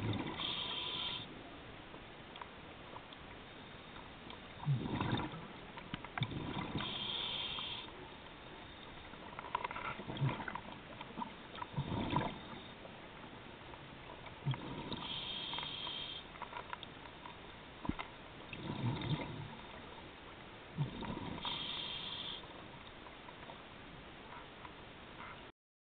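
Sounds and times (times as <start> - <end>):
exhaled bubbles rumbling: 0.0 - 0.6, 4.5 - 7.0, 9.9 - 12.7, 14.1 - 15.2, 17.8 - 19.9, 20.7 - 21.6
regulator hissing inhale: 0.4 - 1.3, 6.8 - 7.9, 15.0 - 16.3, 21.4 - 22.5.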